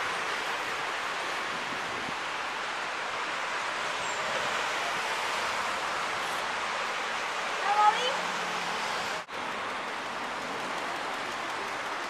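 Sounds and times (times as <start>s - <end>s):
distant city traffic hiss: 0.0s - 12.0s.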